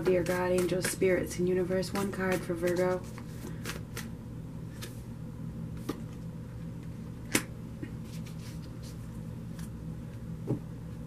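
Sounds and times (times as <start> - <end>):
steady low hum: 0.0 - 11.0
cards being handled: 2.0 - 4.1, 7.3 - 9.8.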